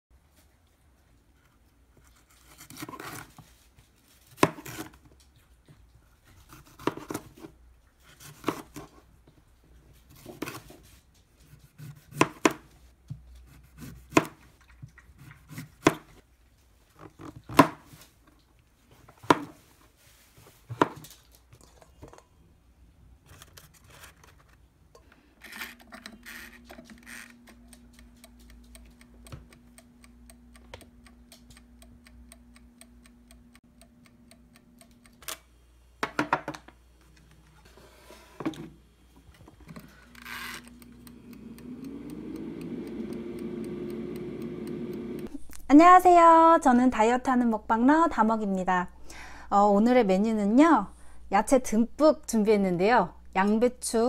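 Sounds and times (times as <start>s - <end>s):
air fryer fan hum: 25.1s - 37.1s, 37.7s - 46.1s
dial timer ticking: 26.0s - 35.5s, 39.7s - 45.3s.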